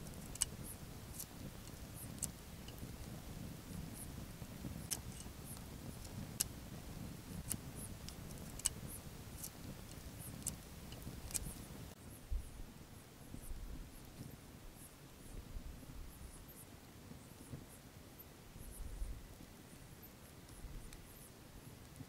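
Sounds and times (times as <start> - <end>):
campfire crackling and popping: 0.0 - 12.0, 19.4 - 22.0.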